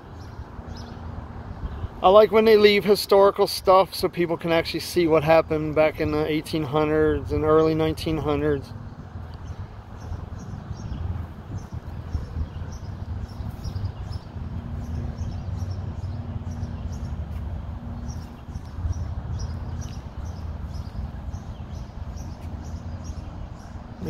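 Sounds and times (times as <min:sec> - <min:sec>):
birds chirping: 0:00.0 - 0:24.0
steady low rumble: 0:05.6 - 0:24.0.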